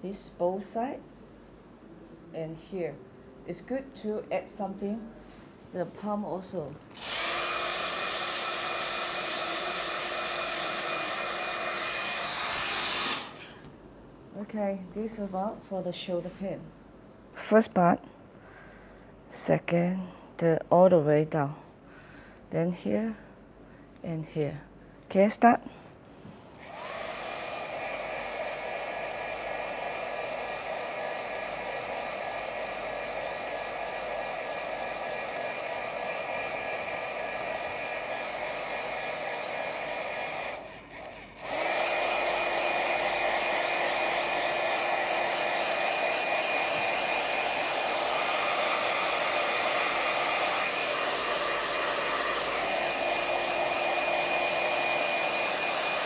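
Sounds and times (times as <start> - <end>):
fan whirring: 26.6 - 56.0.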